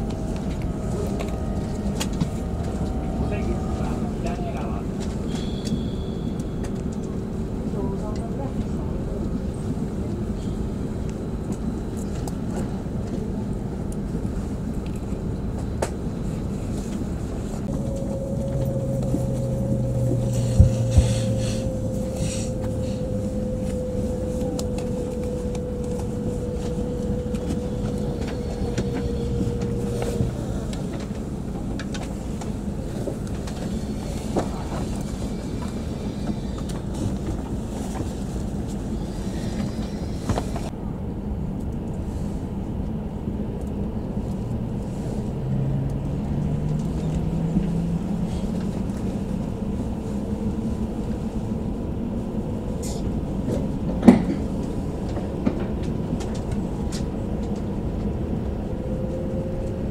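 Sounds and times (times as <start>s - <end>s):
faint whine dropping in pitch: 0.0s - 7.2s, 14.8s - 37.9s
train cabin rumble: 0.0s - 59.9s.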